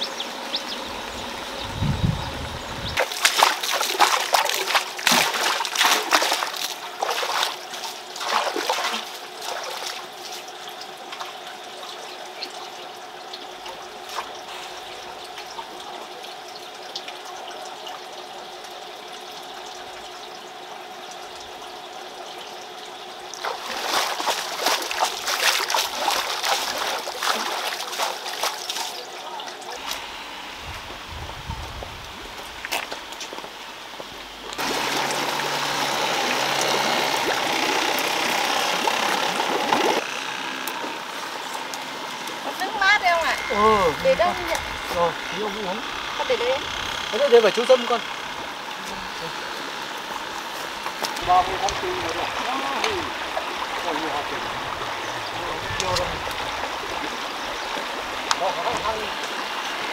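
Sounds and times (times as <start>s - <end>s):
water trickling: 0.0s - 59.9s
water splashing and pouring: 3.0s - 12.7s, 13.3s - 18.8s, 23.3s - 30.0s, 34.2s - 40.1s, 50.0s - 59.9s.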